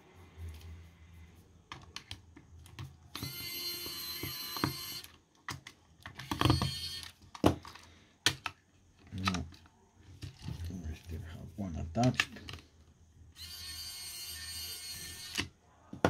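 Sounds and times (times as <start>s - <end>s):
electric screwdriver whirring: 3.1s - 5.2s, 6.2s - 7.2s, 13.4s - 15.5s.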